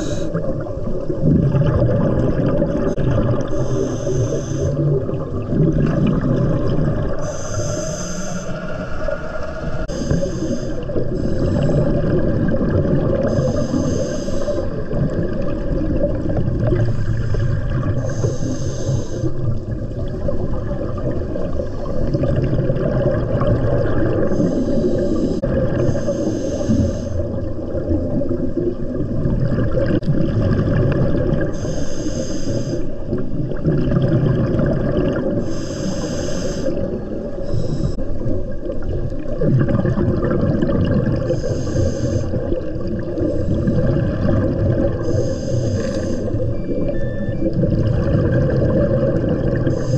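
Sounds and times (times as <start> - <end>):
diver breathing through regulator: 0.0 - 0.5, 3.4 - 5.0, 7.2 - 12.2, 13.2 - 14.9, 16.7 - 19.5, 21.4 - 22.5, 24.1 - 27.4, 31.5 - 33.0, 35.4 - 38.1, 41.2 - 47.2, 49.6 - 49.9
exhaled bubbles bursting: 0.0 - 4.0, 4.7 - 7.3, 9.7 - 13.8, 14.6 - 18.3, 19.2 - 26.0, 27.2 - 31.5, 33.1 - 35.5, 38.0 - 49.9
low rumble of water: 0.0 - 49.9.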